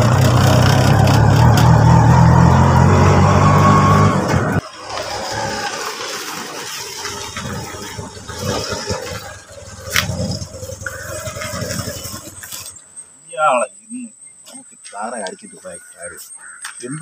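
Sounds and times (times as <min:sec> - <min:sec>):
small engine pulsing unevenly: 0:00.0 - 0:12.8.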